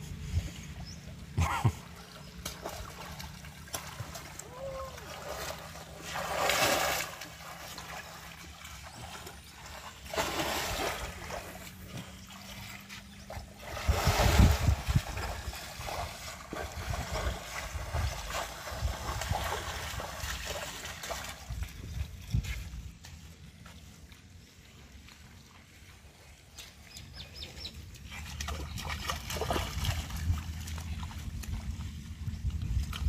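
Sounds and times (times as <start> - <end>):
splashing in muddy water: 0.1 - 33.0
water running across mud: 1.6 - 33.0.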